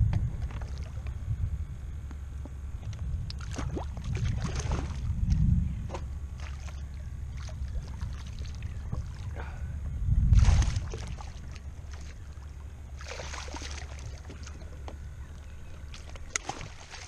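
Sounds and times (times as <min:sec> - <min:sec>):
steady low rumble: 0:00.0 - 0:17.0
fish splashing in water: 0:03.3 - 0:05.1, 0:10.4 - 0:14.8, 0:15.7 - 0:17.0.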